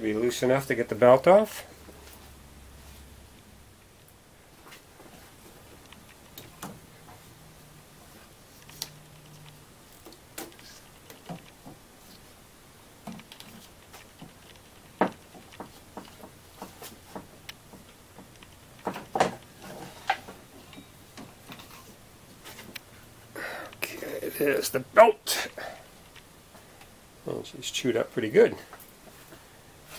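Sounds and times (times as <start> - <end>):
drive belt clicks and knocks: 13.0 - 20.4.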